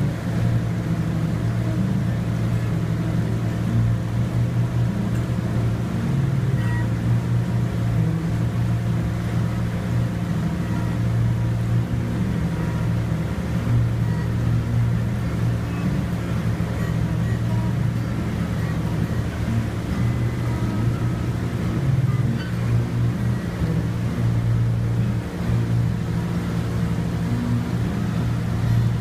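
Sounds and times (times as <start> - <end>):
boat engine humming: 0.0 - 29.0.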